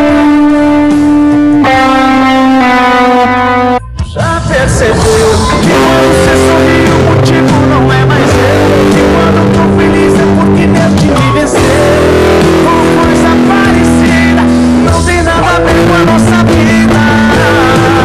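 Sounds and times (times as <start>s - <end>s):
band accompaniment with bass: 0.0s - 18.0s
electric guitar melodic lead: 0.0s - 18.0s.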